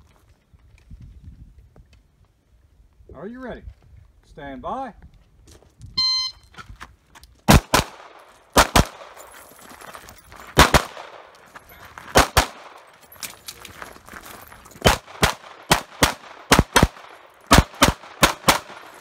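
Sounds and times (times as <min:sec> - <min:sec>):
shot timer beep: 0:06.0 - 0:06.5
pistol shots: 0:07.5 - 0:09.2, 0:10.6 - 0:11.3, 0:12.1 - 0:12.9, 0:14.8 - 0:19.0.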